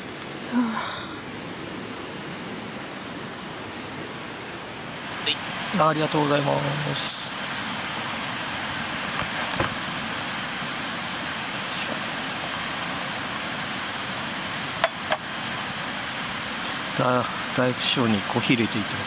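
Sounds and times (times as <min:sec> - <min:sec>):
steady rushing hiss: 0:00.0 - 0:19.0.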